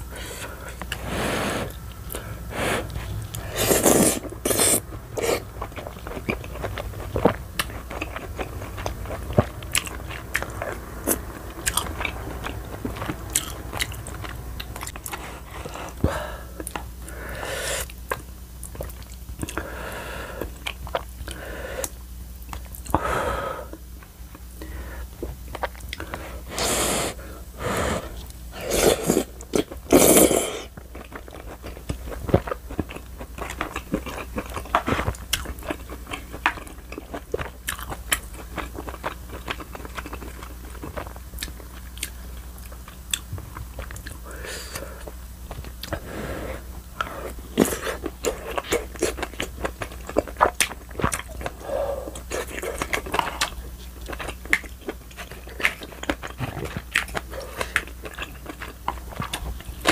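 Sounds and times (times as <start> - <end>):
person chewing: 0.0 - 23.1, 23.7 - 59.9
slurps: 0.9 - 5.5.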